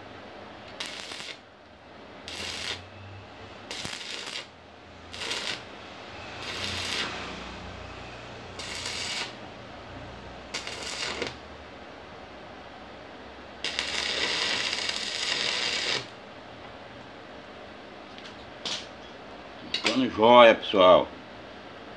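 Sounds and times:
arc welding crackling sizzles: 0:00.6 - 0:01.4, 0:02.2 - 0:11.5, 0:13.6 - 0:16.2.

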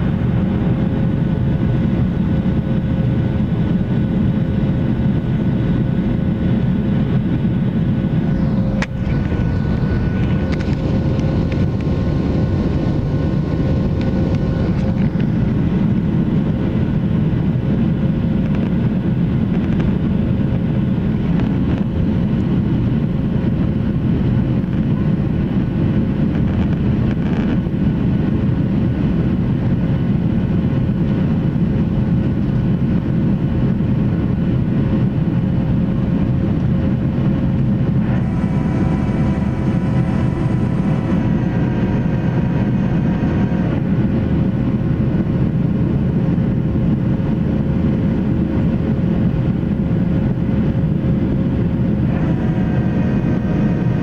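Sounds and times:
rushing air: 0:00.0 - 0:21.7, 0:35.4 - 0:54.0
jet engine roar in cabin: 0:00.0 - 0:54.0
multi-tone whine: 0:00.0 - 0:54.0.

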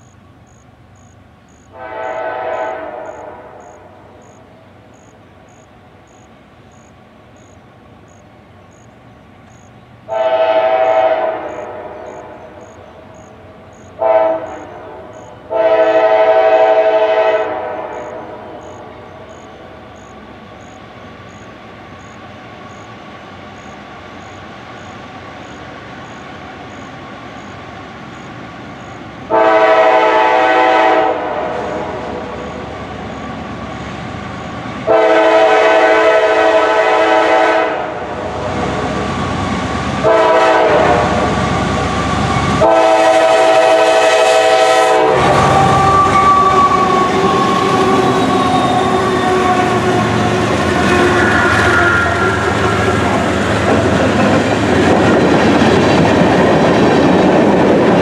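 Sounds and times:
diesel locomotive engines: 0:00.0 - 0:58.0
train air horn: 0:01.5 - 0:04.4, 0:10.1 - 0:19.4, 0:29.3 - 0:32.8, 0:34.8 - 0:39.1, 0:40.0 - 0:54.0
steel wheels on rails: 0:38.3 - 0:58.0.

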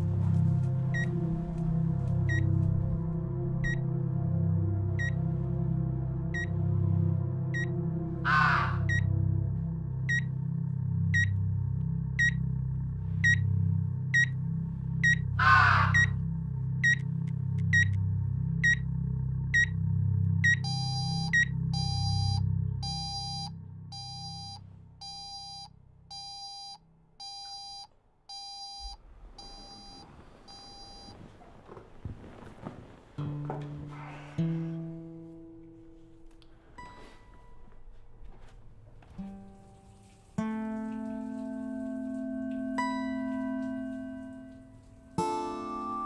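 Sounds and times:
low pulsing drone: 0:00.0 - 0:25.0
patient monitor beeping: 0:02.2 - 0:02.6, 0:08.8 - 0:09.2, 0:10.0 - 0:10.4, 0:11.1 - 0:11.5, 0:12.1 - 0:12.5, 0:13.2 - 0:13.5, 0:14.1 - 0:14.4, 0:15.0 - 0:16.2, 0:16.8 - 0:18.0, 0:18.6 - 0:18.9, 0:19.5 - 0:19.8, 0:20.4 - 0:31.2
alarm clock electronic beeping: 0:05.0 - 0:05.2, 0:06.3 - 0:06.6, 0:07.5 - 0:07.8, 0:08.8 - 0:09.1, 0:10.0 - 0:10.4, 0:11.1 - 0:11.4, 0:12.1 - 0:12.5, 0:13.2 - 0:13.5, 0:14.1 - 0:14.4, 0:15.0 - 0:15.3, 0:15.9 - 0:16.2, 0:16.8 - 0:17.0, 0:17.6 - 0:18.0, 0:18.6 - 0:18.9, 0:19.5 - 0:19.8, 0:20.4 - 0:31.1
raven cawing: 0:08.1 - 0:09.2, 0:15.2 - 0:16.2.

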